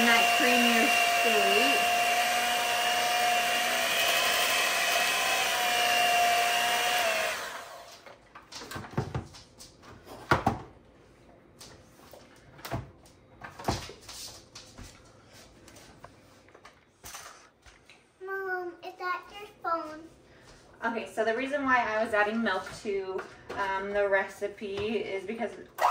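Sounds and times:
electric mixer whining: 0.0s - 8.1s.

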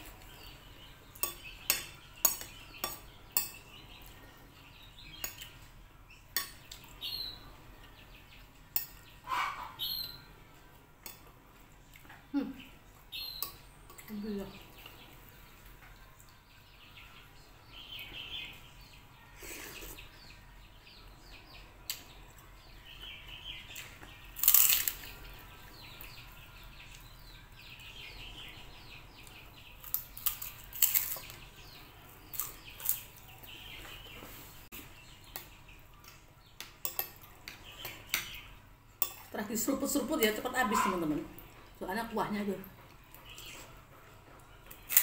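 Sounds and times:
chewing and crunching cracker: 24.1s - 25.2s, 29.8s - 31.4s
metal cutlery clicking on bowl: 24.4s - 25.0s, 39.0s - 39.3s.

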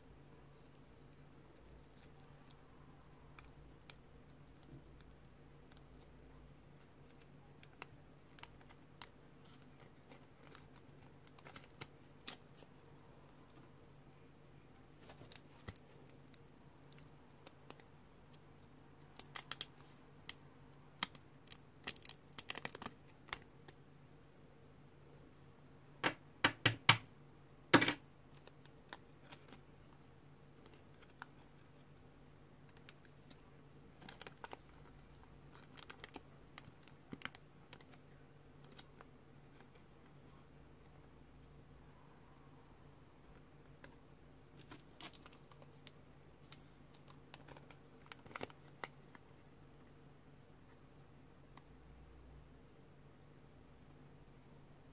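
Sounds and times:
paper wrapper crinkling: 3.3s - 12.7s, 14.6s - 23.5s, 28.3s - 32.0s, 32.6s - 40.2s, 43.7s - 49.4s.

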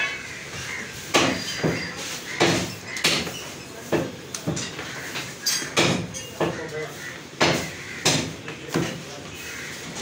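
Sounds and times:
knocks from butchering meat: 1.1s - 3.3s, 7.4s - 9.0s.

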